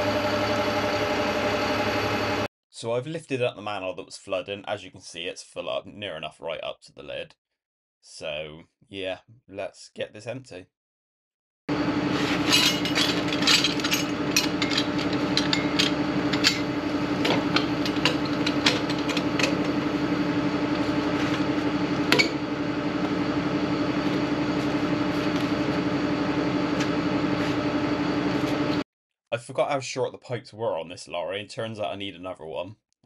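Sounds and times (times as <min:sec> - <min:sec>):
vacuum tanker lorry humming: 0:00.0 - 0:02.5, 0:11.7 - 0:28.8
suction hose clanking: 0:12.2 - 0:19.9.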